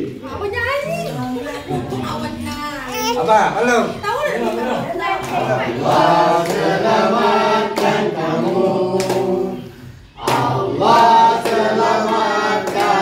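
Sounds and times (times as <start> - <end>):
group singing birthday song: 0.0 - 2.8, 3.5 - 13.0
people clapping along: 5.2 - 9.6, 10.2 - 13.0.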